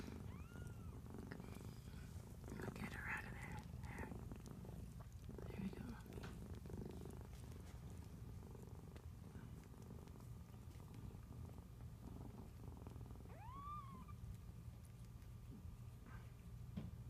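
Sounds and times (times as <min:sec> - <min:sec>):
cat purring: 0:00.0 - 0:16.8
kitten mewing: 0:13.3 - 0:14.2.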